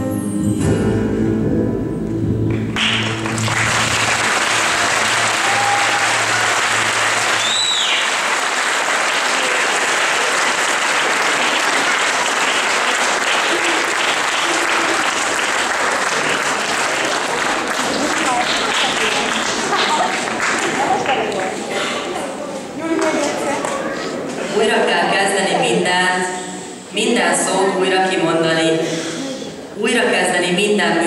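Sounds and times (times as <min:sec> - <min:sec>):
audience applauding: 0:02.5 - 0:21.8
short whistle: 0:07.4 - 0:08.1.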